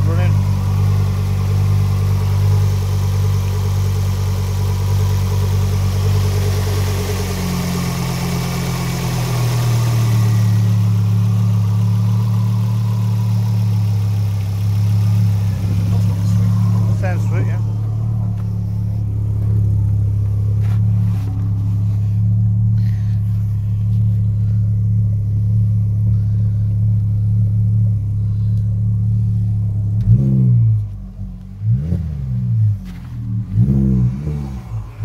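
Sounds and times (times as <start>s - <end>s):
car engine idling with a tap: 17.8s - 21.7s, 32.8s - 33.3s.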